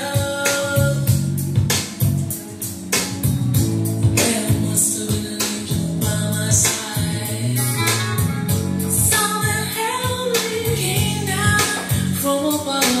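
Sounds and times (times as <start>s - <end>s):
person singing: 0.0s - 1.3s, 4.0s - 13.0s
steady bass line: 0.0s - 12.7s
guitar: 0.0s - 13.0s.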